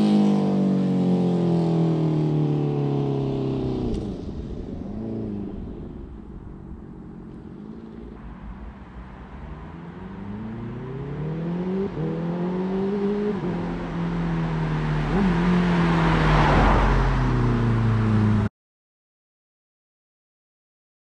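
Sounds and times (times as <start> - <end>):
vehicle engine accelerating: 2.0 - 18.5.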